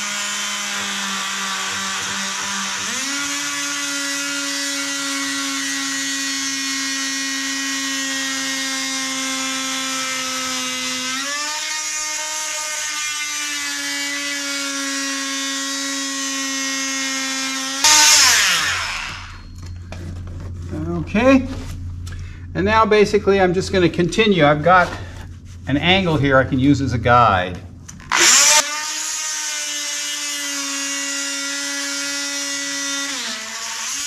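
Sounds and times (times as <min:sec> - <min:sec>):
rotary tool whining: 0:00.0 - 0:20.6, 0:27.9 - 0:34.0
loud burst: 0:17.8 - 0:19.4.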